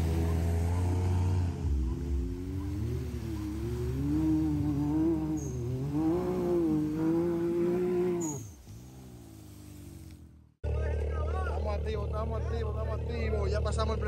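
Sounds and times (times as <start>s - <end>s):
water spraying from wheels: 0.0s - 10.5s
engine revving: 0.0s - 14.0s.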